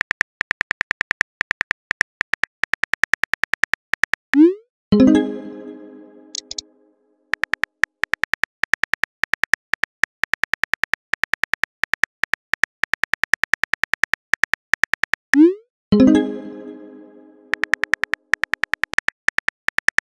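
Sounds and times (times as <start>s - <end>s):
phone keyboard key clicks: 6.4s - 6.6s, 7.3s - 15.2s, 17.5s - 20.0s.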